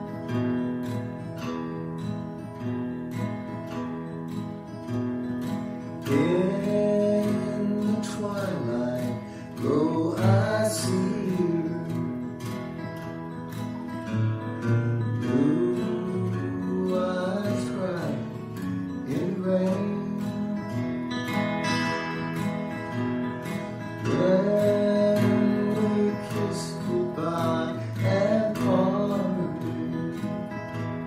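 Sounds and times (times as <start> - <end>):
acoustic guitar strumming: 0.0 - 31.0
man singing: 6.0 - 12.3, 14.9 - 21.3, 23.8 - 31.0.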